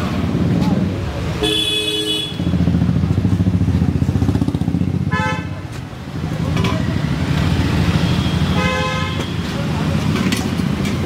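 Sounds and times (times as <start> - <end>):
vehicle horn toot: 1.4 - 2.5, 8.0 - 9.4
motorcycle engine running: 2.3 - 5.3.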